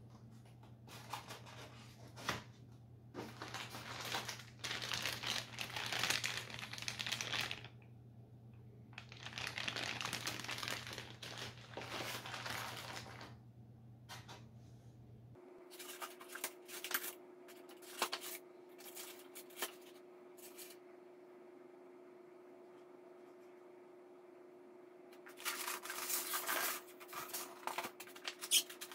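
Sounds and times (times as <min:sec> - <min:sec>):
plastic bag crinkling: 0:03.2 - 0:07.8, 0:09.0 - 0:13.4, 0:25.2 - 0:28.9.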